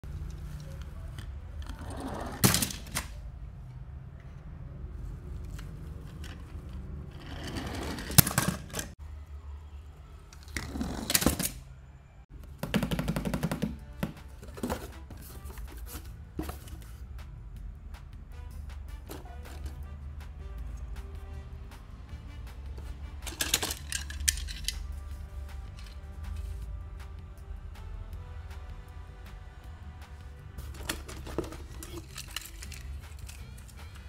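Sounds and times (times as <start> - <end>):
quiet background music: 0.0 - 34.0
toy cars clattering: 0.1 - 4.4, 5.2 - 9.0, 10.3 - 11.7, 22.8 - 26.5, 30.6 - 34.0.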